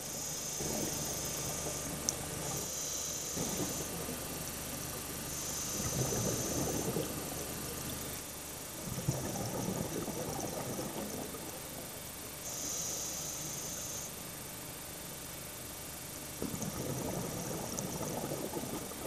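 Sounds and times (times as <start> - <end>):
bubbling exhaled air underwater: 0.6 - 2.7, 3.3 - 12.5, 16.4 - 19.0
regulator hiss on inhalation: 2.6 - 4.0, 5.3 - 6.8, 12.5 - 14.2.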